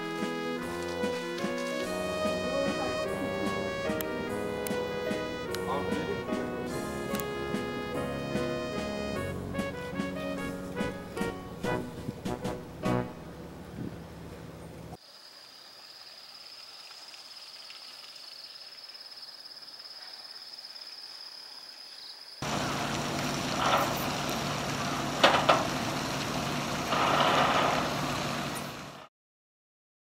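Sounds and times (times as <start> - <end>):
ferry engine running: 0.0 - 15.0, 22.4 - 29.1.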